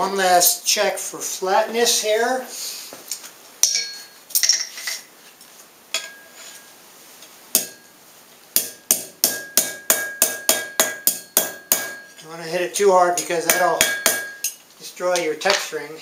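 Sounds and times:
hammer striking metal on anvil: 3.6 - 4.7, 7.5 - 7.9, 8.6 - 12.2, 13.2 - 14.6.

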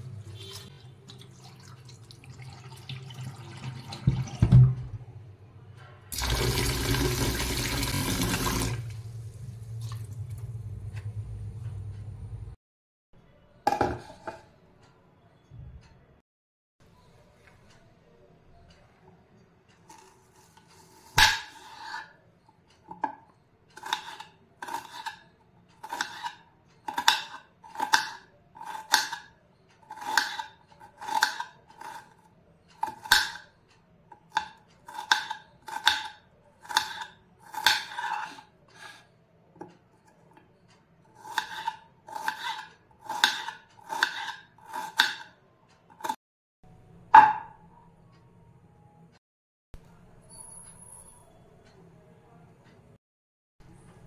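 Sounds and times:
knife slicing onion on board: 23.8 - 25.2, 25.8 - 29.3, 29.9 - 32.2, 34.3 - 39.1, 41.2 - 46.2.

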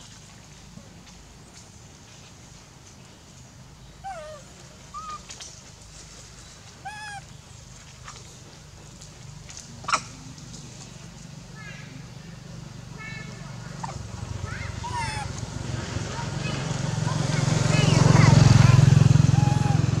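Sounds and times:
infant monkey crying: 4.0 - 5.3, 6.8 - 7.3, 13.7 - 15.5, 19.2 - 20.0.

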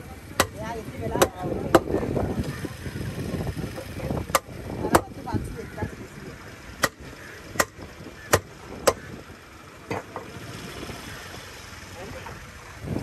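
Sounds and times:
sharp knocks: 6.8 - 9.0.

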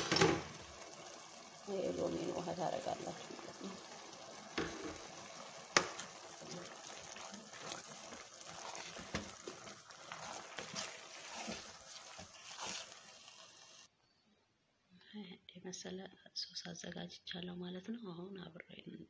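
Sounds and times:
juice trickling and splashing: 0.6 - 13.9.

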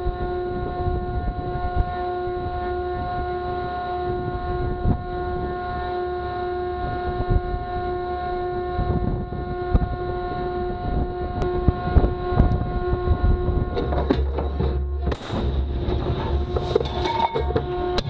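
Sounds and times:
ship machinery humming: 0.0 - 18.0
wind on microphone: 0.0 - 18.0
low rumble: 8.8 - 18.0.

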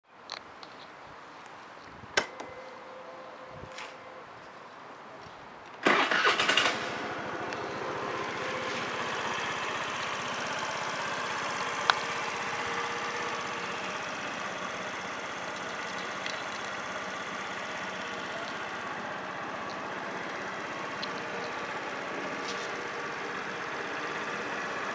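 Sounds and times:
scooter engine starting and idling: 5.8 - 24.9.

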